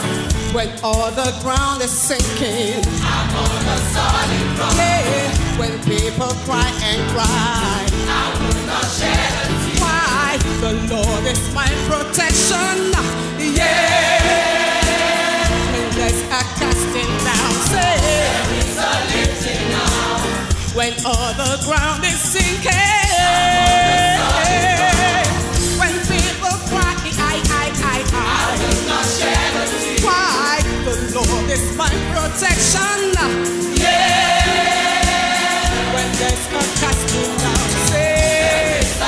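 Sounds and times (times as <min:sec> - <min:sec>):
high lead voice singing: 0:00.0 - 0:21.2, 0:22.2 - 0:31.8
gospel band playing: 0:00.0 - 0:39.0
backing choir singing: 0:02.2 - 0:11.6, 0:12.2 - 0:20.8, 0:22.8 - 0:31.2, 0:32.6 - 0:39.0.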